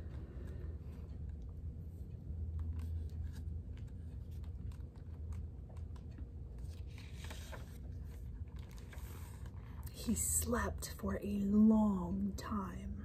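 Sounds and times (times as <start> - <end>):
steady low hum: 0.0 - 13.0
paper pages rustling: 2.6 - 9.9.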